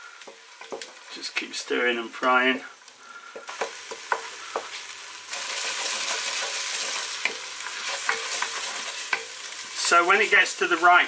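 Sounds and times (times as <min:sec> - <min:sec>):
paste sizzling in hot oil: 0:00.0 - 0:11.0
wooden spatula scraping pot: 0:03.5 - 0:09.6.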